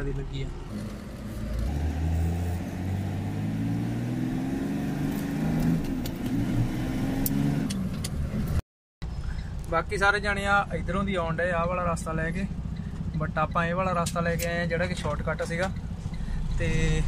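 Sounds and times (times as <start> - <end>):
truck diesel engine accelerating: 0.6 - 8.6.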